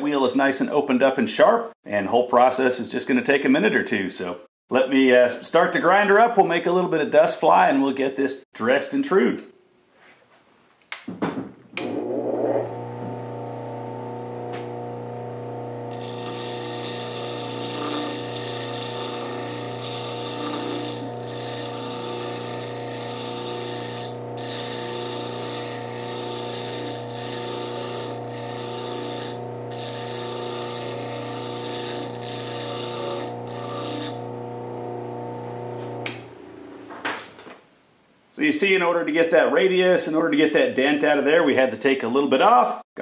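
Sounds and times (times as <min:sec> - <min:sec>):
grinder motor humming: 0:11.9 - 0:36.4
dresser scraping grinding wheel: 0:15.6 - 0:36.0.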